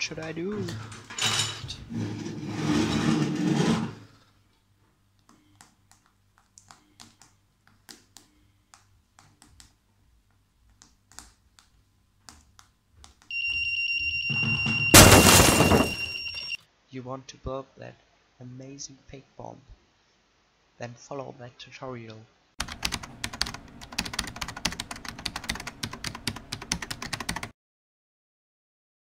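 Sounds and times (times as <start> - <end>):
high-pitched buzzer alarm tone: 13.3 - 16.6.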